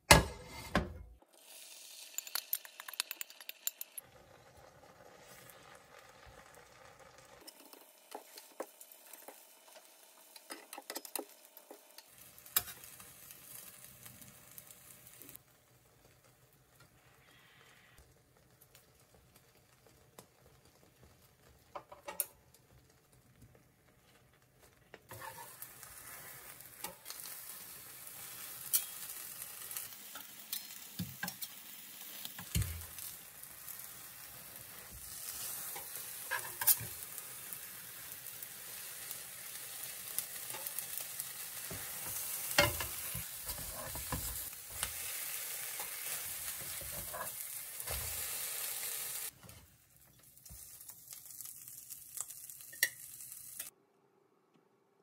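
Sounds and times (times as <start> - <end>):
spatula scraping a pan: 0.2 - 0.9, 25.1 - 29.2, 34.6 - 37.2, 39.7 - 48.5
eggs sizzling in a pan: 1.2 - 53.8.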